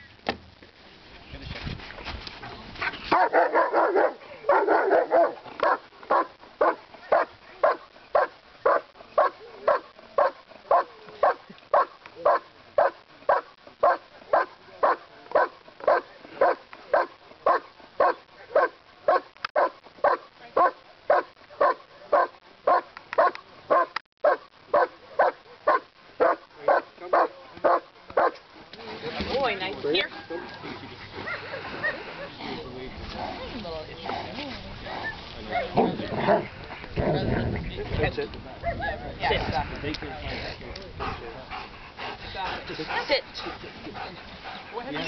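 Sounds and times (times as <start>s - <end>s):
dog barking: 3.1s - 28.4s.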